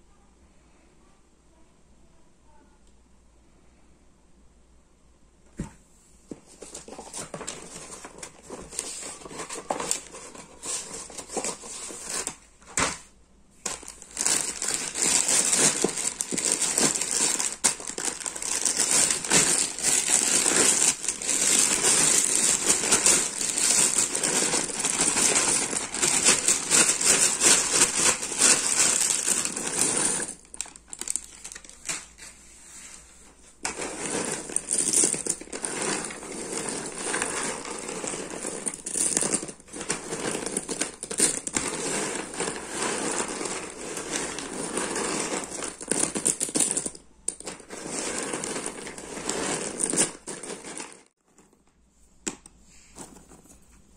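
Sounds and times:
puzzle pieces rustling and clicking: 6.3s - 32.4s, 33.5s - 53.9s
plastic bag crinkling: 13.7s - 32.3s.

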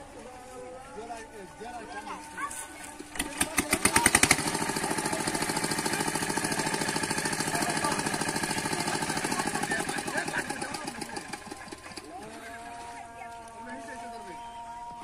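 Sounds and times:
small engine chugging: 2.6s - 15.0s.

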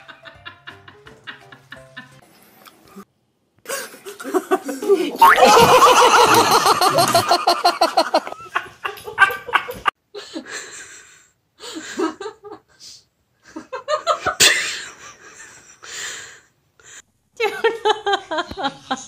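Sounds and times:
person laughing hard: 3.7s - 9.9s.

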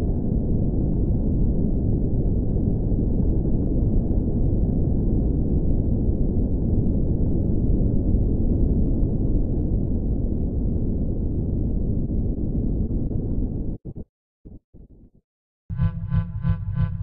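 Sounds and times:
low rumble: 15.7s - 17.0s.

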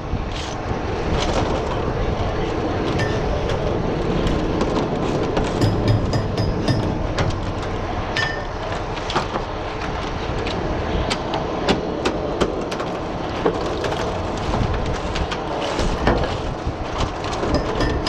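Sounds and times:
wind: 0.0s - 18.0s
boat engine running: 1.5s - 11.6s.

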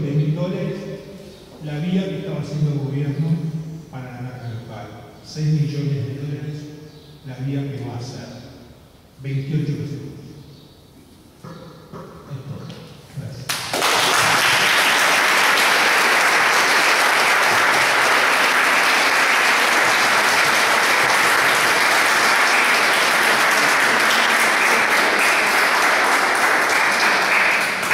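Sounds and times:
audience applauding: 13.5s - 27.9s.

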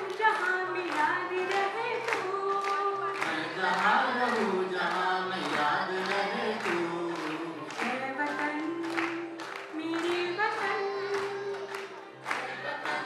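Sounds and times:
woman singing: 0.0s - 13.0s
voices singing along: 3.1s - 8.0s, 10.1s - 13.0s.

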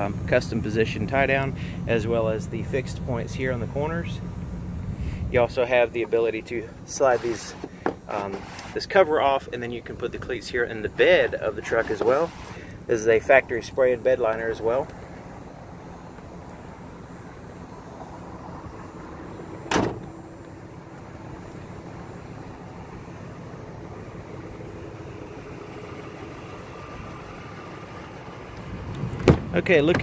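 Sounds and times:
truck tailgate thud: 19.6s - 20.3s, 29.2s - 30.0s.

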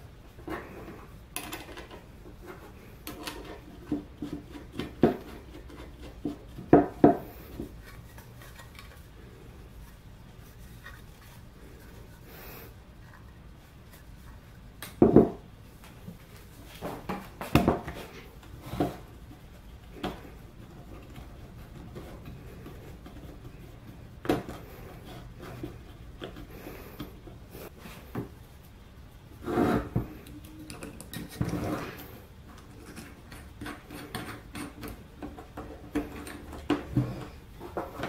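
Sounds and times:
wood knocking and rubbing on wood: 1.8s - 9.0s, 14.9s - 15.5s.

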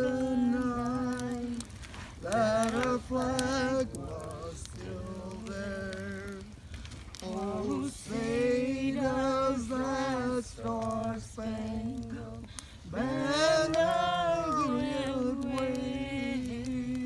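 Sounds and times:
voice singing long notes: 0.0s - 17.0s.

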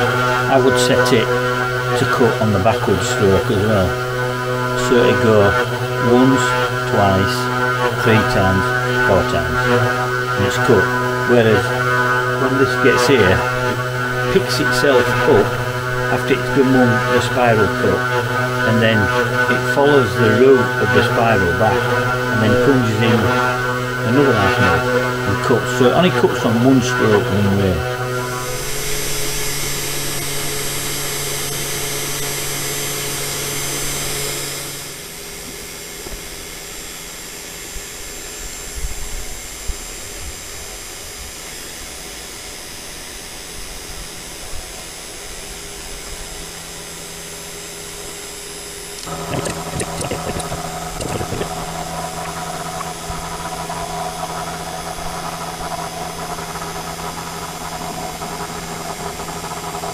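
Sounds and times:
router spindle humming: 0.0s - 59.9s
cutter bit ticking on wood: 49.0s - 59.9s.

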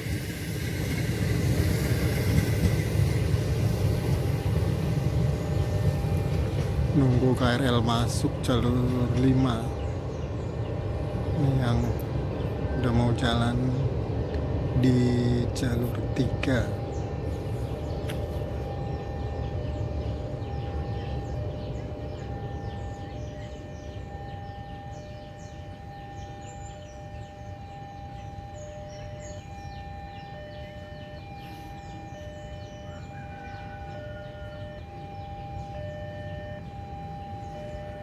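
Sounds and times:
electronic warning tone: 0.0s - 38.0s.

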